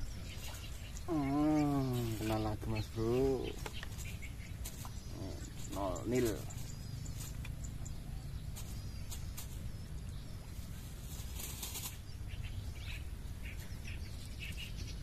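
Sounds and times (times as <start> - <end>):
small birds chirping: 0.0 - 15.0
short rustle: 10.6 - 12.0.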